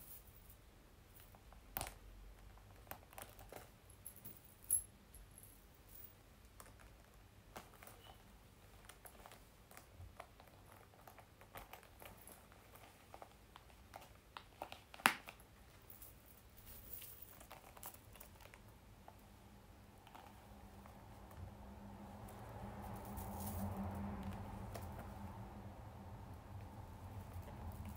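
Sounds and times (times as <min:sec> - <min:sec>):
metal chain clinking: 0:03.6 - 0:06.1, 0:15.8 - 0:18.4
leather bag rustling: 0:15.7 - 0:18.6, 0:23.0 - 0:23.8.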